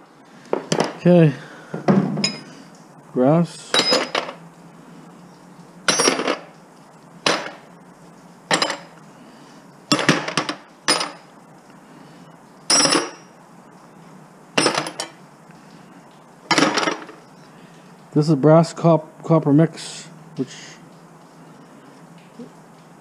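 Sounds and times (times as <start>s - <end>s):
brass hardware clanking on metal: 3.7s - 4.4s.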